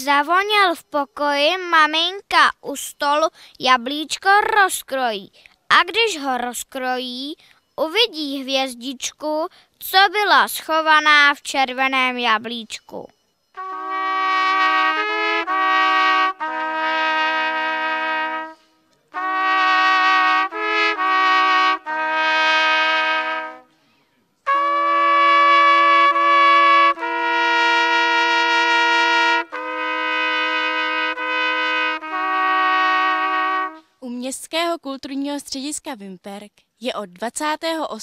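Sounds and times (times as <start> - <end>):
trumpets playing slow melody: 13.6 - 23.7, 24.4 - 33.9.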